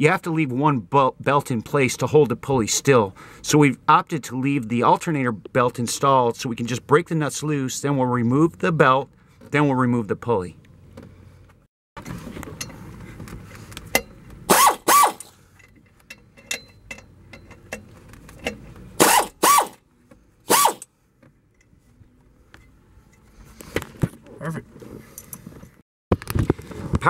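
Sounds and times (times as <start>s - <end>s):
sharp loud cracks of nuts breaking loose: 14.5s - 15.4s, 19.0s - 19.8s, 20.5s - 20.8s.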